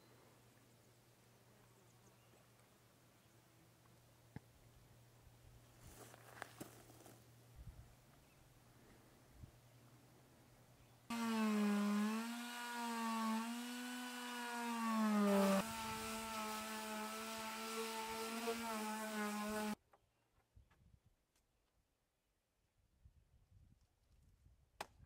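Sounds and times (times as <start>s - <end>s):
electric power sander sanding wood: 11.1s - 19.8s.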